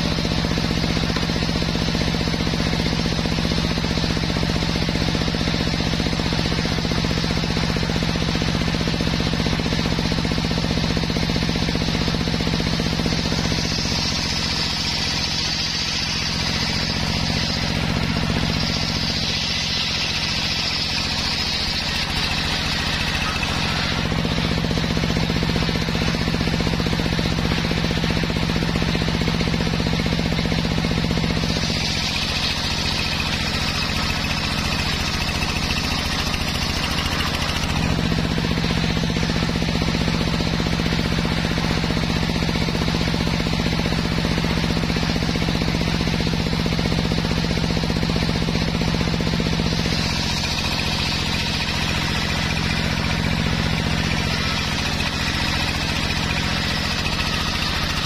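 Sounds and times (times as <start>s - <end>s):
table saw motor humming: 0.0s - 44.7s, 48.2s - 58.0s
saw blade ripping log: 12.5s - 26.6s, 31.2s - 39.2s, 49.4s - 53.3s.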